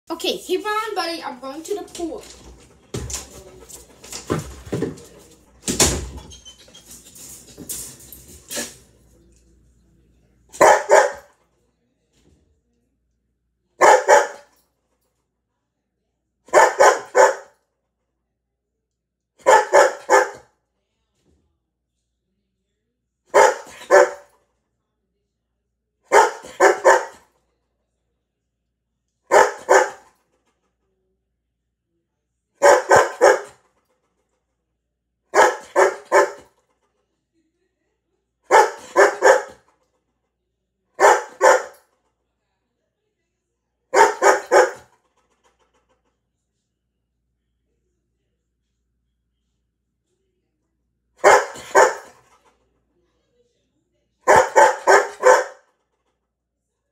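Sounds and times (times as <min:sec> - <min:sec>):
dog barking: 0:10.5 - 0:11.3, 0:13.8 - 0:14.5, 0:16.5 - 0:17.6, 0:19.4 - 0:20.5, 0:23.3 - 0:24.3, 0:26.1 - 0:27.3, 0:29.3 - 0:30.2, 0:32.6 - 0:33.6, 0:35.3 - 0:36.6, 0:38.5 - 0:39.7, 0:41.0 - 0:41.8, 0:43.9 - 0:44.9, 0:51.2 - 0:52.2, 0:54.2 - 0:55.7.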